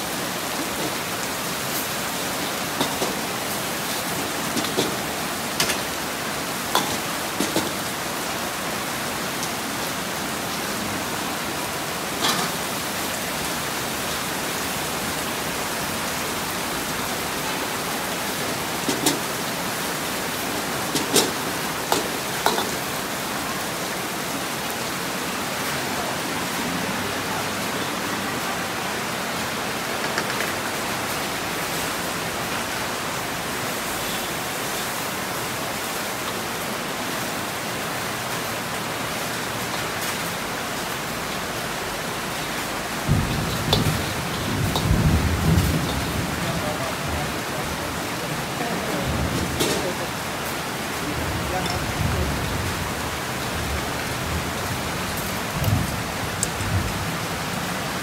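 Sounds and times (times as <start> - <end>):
heavy rain: 0.0 - 58.0
stir-frying in a wok: 0.4 - 8.0, 18.0 - 23.1, 41.7 - 47.5.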